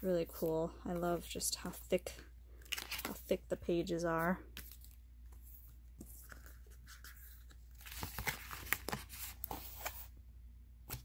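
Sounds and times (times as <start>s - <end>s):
cardboard pages turning: 2.6s - 3.4s, 4.6s - 10.1s.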